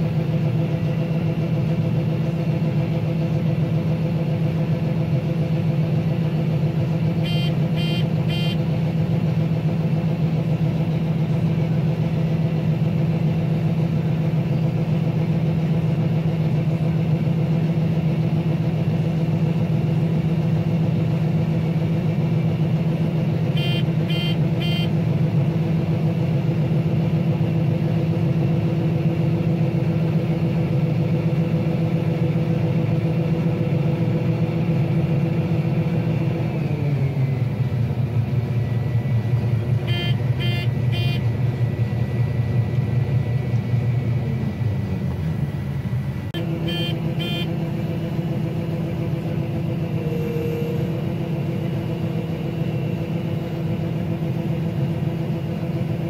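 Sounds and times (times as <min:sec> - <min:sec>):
combine harvester engine droning: 0:00.0 - 0:56.0
quick beeps: 0:39.9 - 0:41.2.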